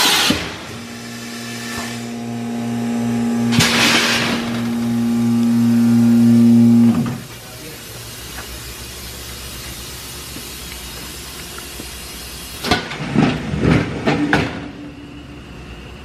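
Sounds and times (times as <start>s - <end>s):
loud mechanical clunks: 0.0s - 7.2s
machine motor winding down: 0.0s - 7.3s
steady hiss: 0.0s - 13.0s.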